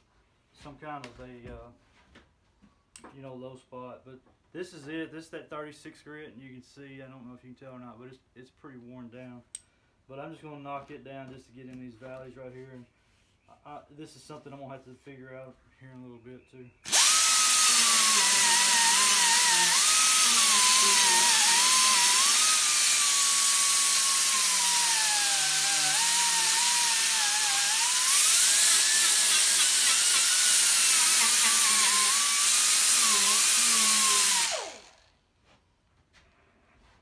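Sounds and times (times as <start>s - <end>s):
angle grinder sanding whine: 16.9s - 35.1s.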